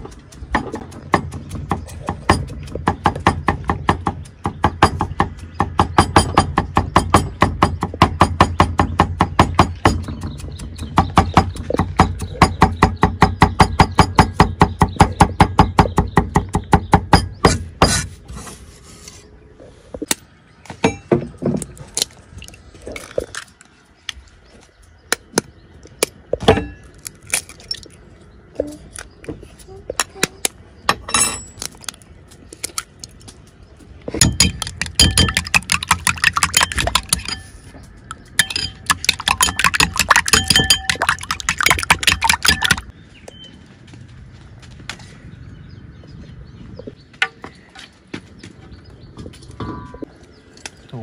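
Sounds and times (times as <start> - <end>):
knocks and clicks: 0.0 - 17.3, 34.1 - 42.9
cleaver chopping on wood: 0.5 - 18.1.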